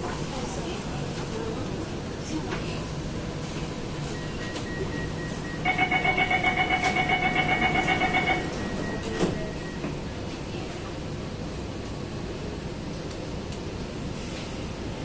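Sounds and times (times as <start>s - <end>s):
train carriage hum: 0.0s - 15.0s
rapid pulsing door warning beep: 4.0s - 9.9s.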